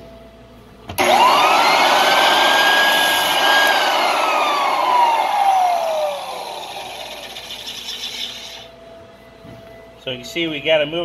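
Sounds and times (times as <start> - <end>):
floor edger motor whine: 1.0 - 8.7
sanding disc cutting wood floor: 1.0 - 8.7.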